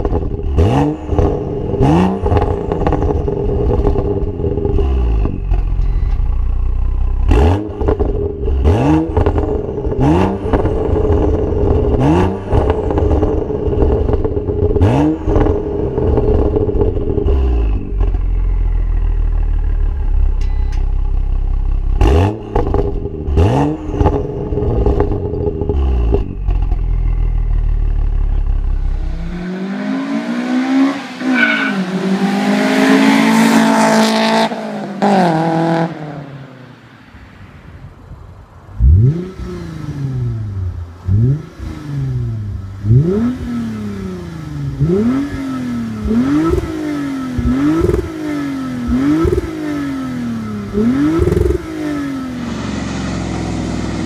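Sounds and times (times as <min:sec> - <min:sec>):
car engine revving: 0:00.0 - 0:20.3, 0:21.1 - 0:36.6, 0:38.6 - 0:54.0
car accelerating hard: 0:28.2 - 0:36.4, 0:38.8 - 0:54.0.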